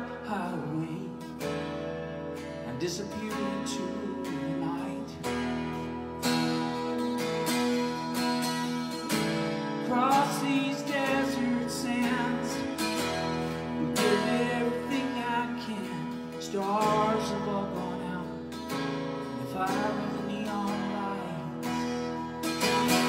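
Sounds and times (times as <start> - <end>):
man singing: 0.0 - 1.7, 2.6 - 5.6, 9.7 - 23.0
strummed acoustic guitar: 0.0 - 23.0.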